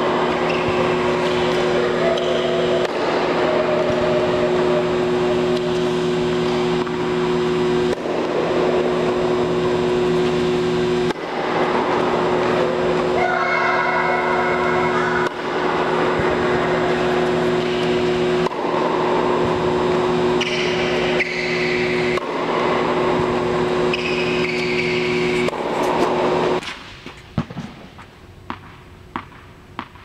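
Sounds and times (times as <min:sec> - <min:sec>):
loud mechanical hum: 0:00.0 - 0:30.0
tennis ball bouncing on court: 0:27.3 - 0:30.0.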